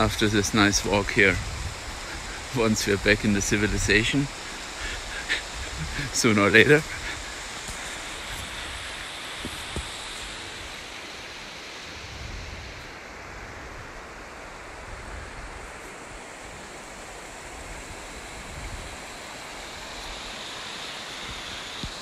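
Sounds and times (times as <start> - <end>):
wind rumble on microphone: 0.0 - 10.8, 12.0 - 19.2
stream water rushing: 0.0 - 22.0.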